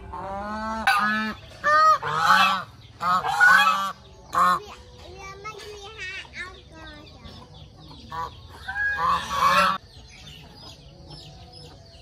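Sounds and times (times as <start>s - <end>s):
geese honking: 0.0s - 4.7s, 7.9s - 11.3s.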